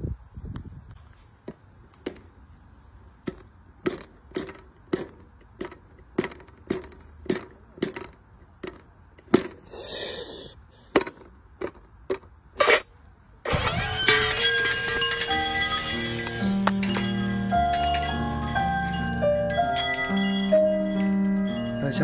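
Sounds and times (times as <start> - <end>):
short hissing noise: 9.6 - 10.8.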